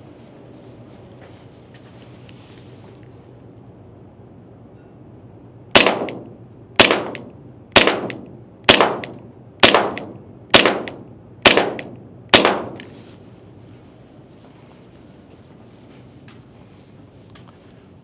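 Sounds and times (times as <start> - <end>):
airsoft pistol shots: 5.8 - 12.9.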